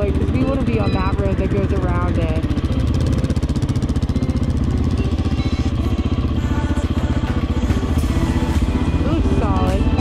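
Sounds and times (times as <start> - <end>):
motorcycle engine running: 0.0 - 10.0.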